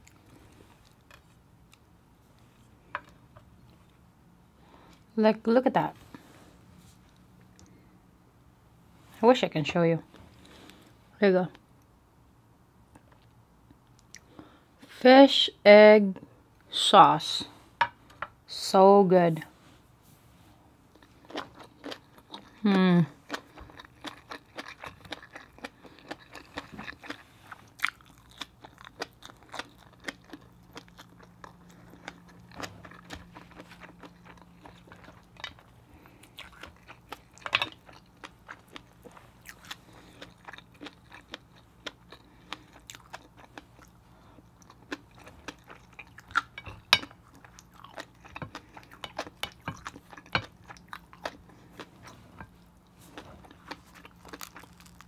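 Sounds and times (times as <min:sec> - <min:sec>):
chewing seafood with crunches: 0:20.9 - 0:55.0.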